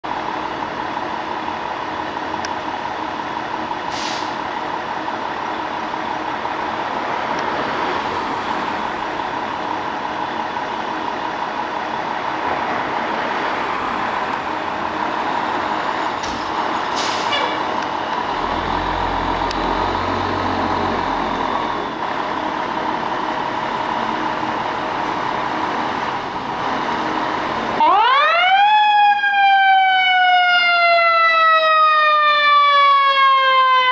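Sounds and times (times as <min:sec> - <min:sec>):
air brake hisses: 0:03.9 - 0:04.4, 0:16.2 - 0:17.6
diesel engine idling: 0:13.5 - 0:27.8.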